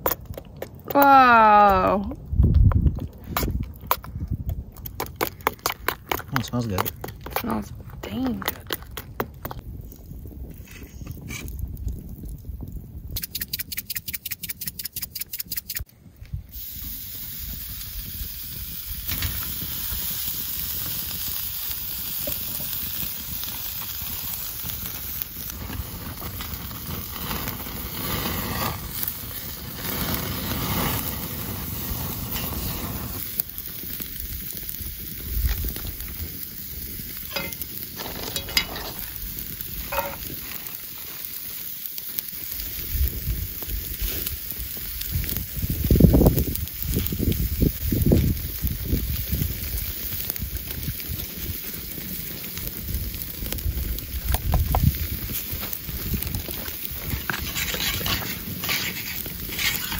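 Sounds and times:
steaks sizzling on grill: 16.5 - 59.9.

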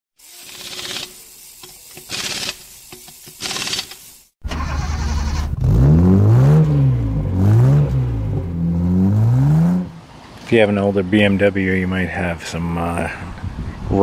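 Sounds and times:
rapid mechanical clicking: 0.2 - 4.2
car engine starting and revving: 4.4 - 10.1.

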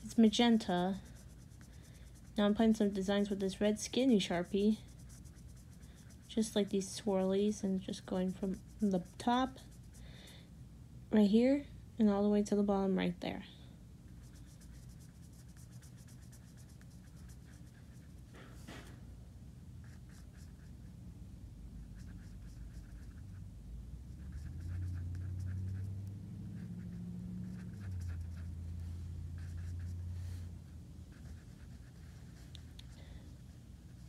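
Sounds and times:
marker rubbing on paper: 0.0 - 10.0, 14.2 - 18.2, 22.0 - 23.4, 24.1 - 30.4, 31.1 - 34.0
low steady hum: 0.0 - 34.0.

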